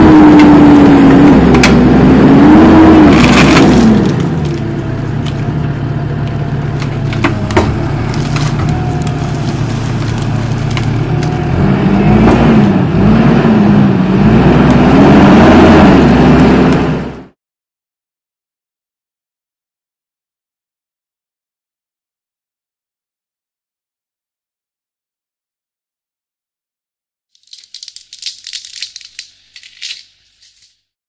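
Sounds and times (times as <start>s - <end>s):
diesel engine under hydraulic load: 0.0s - 17.3s
tree shear clicks and crack: 3.1s - 5.5s, 6.7s - 11.5s, 27.4s - 30.8s.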